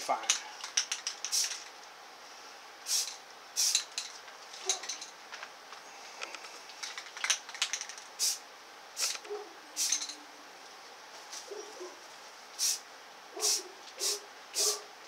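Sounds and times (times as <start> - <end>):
spray can mixing ball clicks: 0.6 - 1.7, 2.9 - 4.1, 9.0 - 9.2, 9.8 - 10.2
spray can hissing bursts: 1.0 - 1.7, 2.8 - 4.1, 8.2 - 8.4, 9.0 - 9.2, 9.8 - 10.2, 12.6 - 12.8, 13.4 - 14.8.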